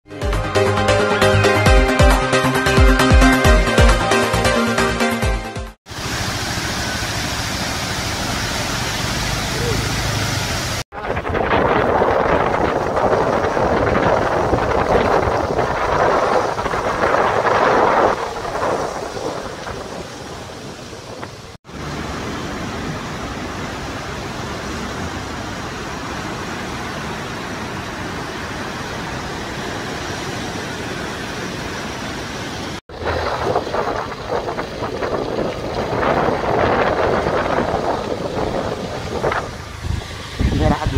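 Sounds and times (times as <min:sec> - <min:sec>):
river rushing: 0:05.9 - 0:40.9
wind buffeting microphone: 0:10.9 - 0:21.6, 0:32.9 - 0:40.9.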